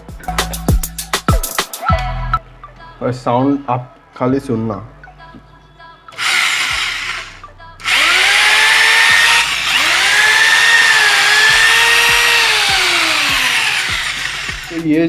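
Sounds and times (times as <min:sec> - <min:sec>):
drill motor whining: 0:06.2 - 0:14.9.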